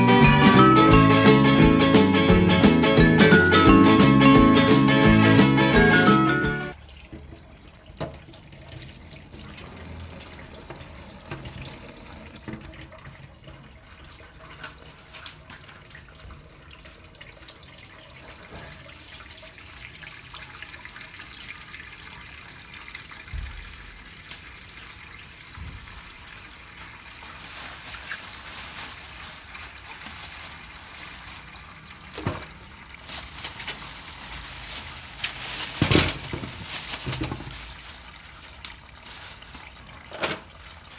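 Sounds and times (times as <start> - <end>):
tap water filling sink: 6.7 - 27.0, 31.3 - 33.0, 38.4 - 40.9
vegetables knocking in sink: 35.6 - 37.6.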